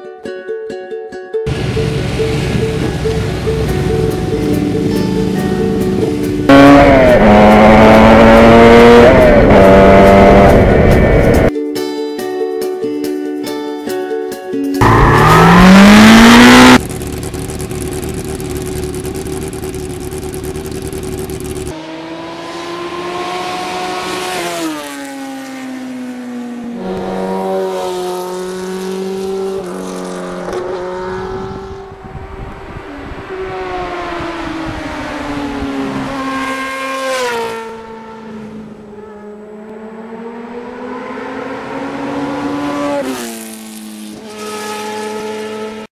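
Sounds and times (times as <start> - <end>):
loud rising whoosh: 1.5 - 11.5, 14.8 - 16.8
motorcycle engine revving: 1.5 - 11.5, 14.8 - 45.9.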